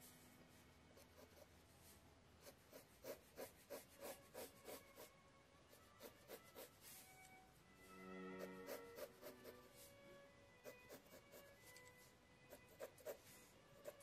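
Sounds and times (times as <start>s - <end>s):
pencil scratching on paper: 1.0s - 5.1s, 5.7s - 7.0s, 8.4s - 9.9s, 10.6s - 11.6s, 12.5s - 14.0s.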